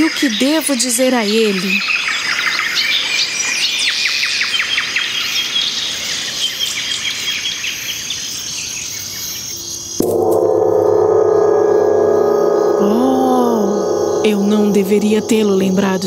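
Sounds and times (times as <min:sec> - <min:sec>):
low sustained music: 0:10.0 - 0:16.0.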